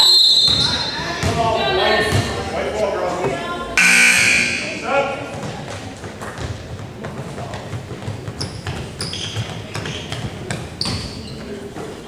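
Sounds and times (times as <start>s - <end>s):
sneakers squeaking on gym floor: 0.0s - 1.4s, 8.0s - 12.0s.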